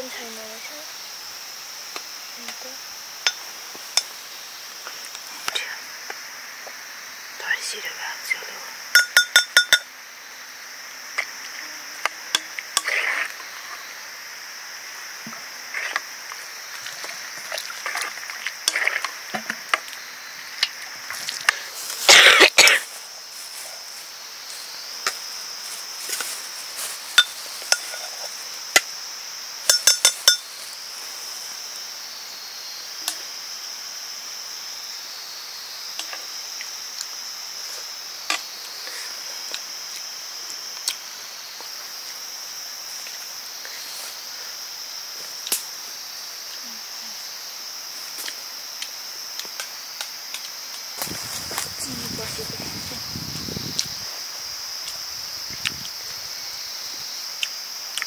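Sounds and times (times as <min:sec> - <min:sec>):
cooking clinks and knocks: 0:09.0 - 0:09.9, 0:29.7 - 0:30.4.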